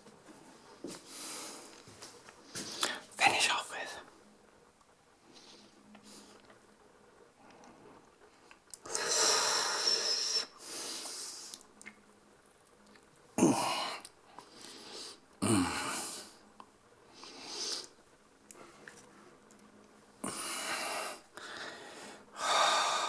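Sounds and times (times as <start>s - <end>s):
man breathing noisily: 1.0s - 1.8s, 8.8s - 11.6s, 13.4s - 16.4s, 17.1s - 17.9s, 20.2s - 23.0s.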